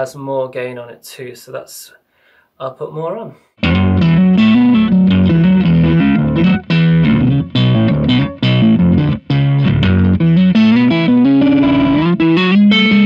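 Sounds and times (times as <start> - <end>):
gritty overdriven electric guitar riff: 3.6 - 13.0.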